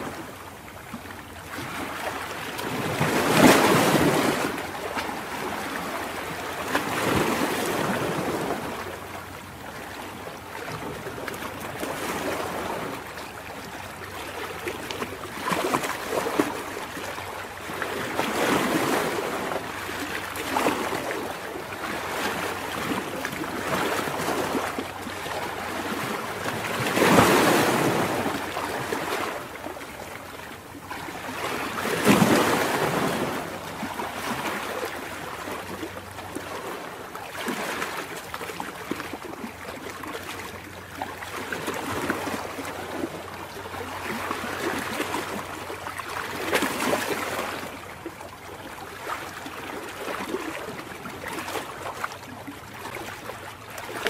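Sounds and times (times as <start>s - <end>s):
waves breaking on rocks: 1.5s - 8.9s, 17.6s - 29.8s, 30.4s - 40.4s, 41.0s - 47.8s.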